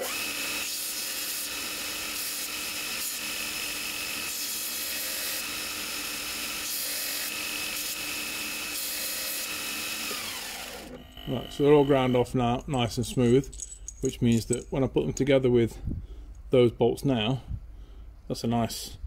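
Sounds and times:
grinder motor winding down: 0:00.0 - 0:12.6
belt grinder grinding steel: 0:00.0 - 0:13.7.

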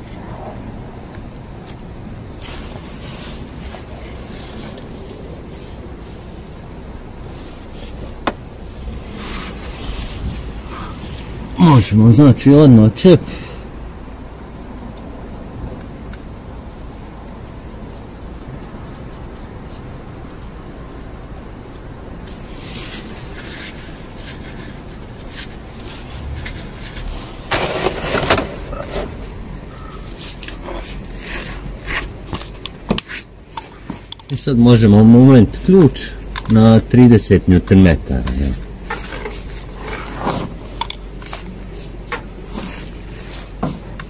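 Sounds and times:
steady low rumble: 0:00.0 - 0:44.0
loud rustling scrape: 0:02.4 - 0:06.4, 0:07.2 - 0:11.6, 0:22.2 - 0:34.1, 0:38.5 - 0:44.0.

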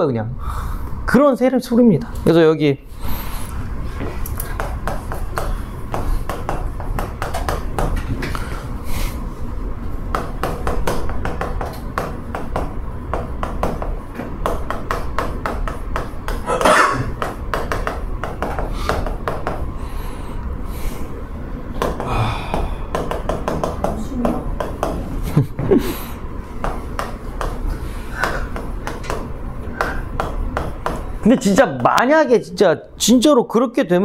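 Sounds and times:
chalk tapping and scratching on chalkboard: 0:04.0 - 0:08.5, 0:10.1 - 0:16.5, 0:17.1 - 0:19.7, 0:22.6 - 0:25.1, 0:26.6 - 0:32.0.

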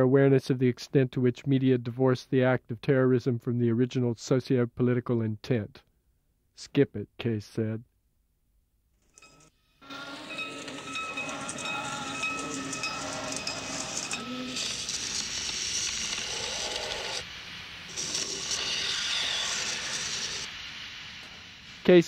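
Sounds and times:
faint steady tones: 0:09.1 - 0:16.3
hissing noisy sound effect: 0:09.8 - 0:22.0.

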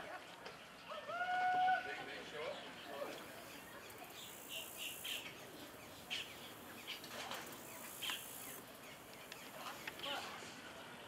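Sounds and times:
birds chirping: 0:02.2 - 0:10.2
steady high hiss: 0:03.1 - 0:10.0.

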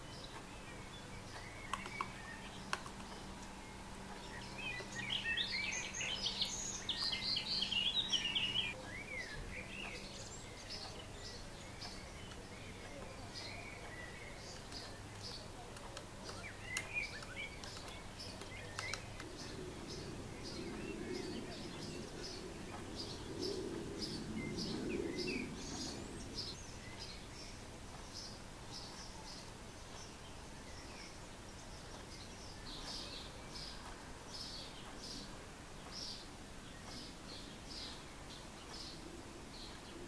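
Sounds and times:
woodpecker nestling calls: 0:00.0 - 0:40.0
sharp clicks: 0:01.3 - 0:04.2, 0:11.8 - 0:23.2
low rushing noise: 0:17.4 - 0:31.8.

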